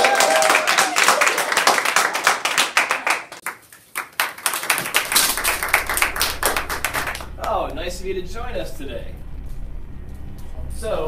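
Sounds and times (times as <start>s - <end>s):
group clapping: 0.0s - 7.6s
low steady hum: 4.8s - 11.0s.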